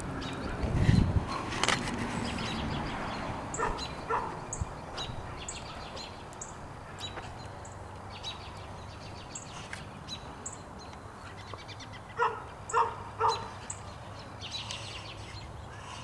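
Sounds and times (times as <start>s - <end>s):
small birds chirping: 0.0s - 16.0s
dog barking: 3.6s - 4.4s, 12.2s - 13.6s.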